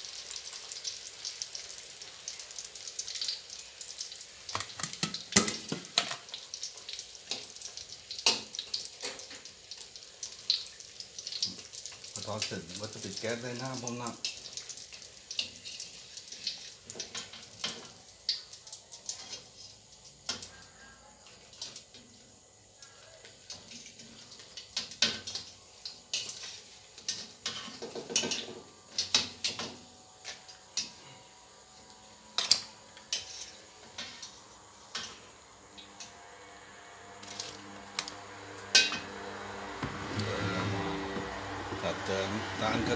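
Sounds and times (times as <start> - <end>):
oil sizzling: 0.0 - 42.9
metal spatula scraping a wok: 26.1 - 28.5, 32.4 - 34.2.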